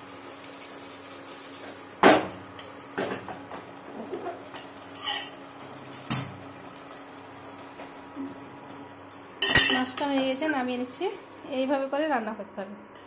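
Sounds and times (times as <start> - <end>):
metal utensil scraping a pot: 5.0 - 5.4.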